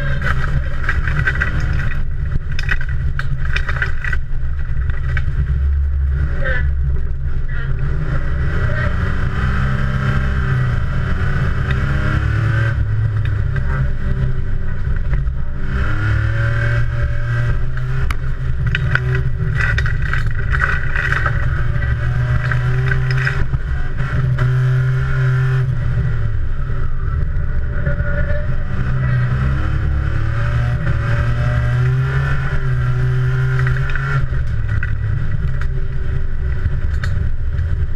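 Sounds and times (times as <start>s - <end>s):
sharp knocks and rattles: 0.0s - 6.0s, 16.6s - 24.8s
racing car engine revving: 0.0s - 37.9s.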